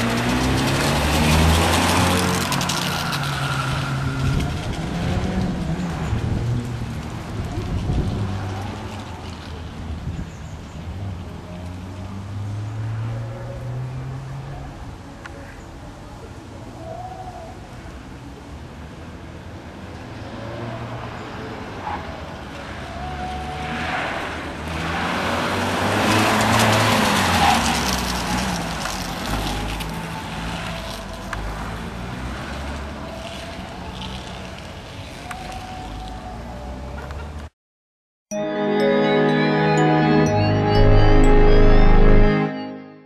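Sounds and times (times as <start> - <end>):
car engine revving: 0.0 - 7.5.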